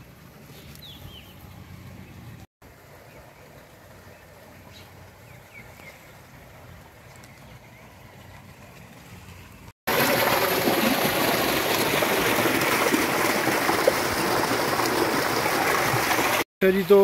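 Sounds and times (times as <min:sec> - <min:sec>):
water gushing into basin: 0:09.9 - 0:16.5.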